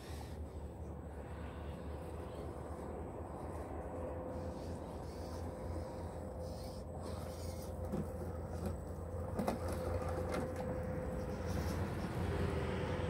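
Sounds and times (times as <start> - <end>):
low wind rumble: 0.0 - 7.0
electric motor whining: 4.3 - 13.0.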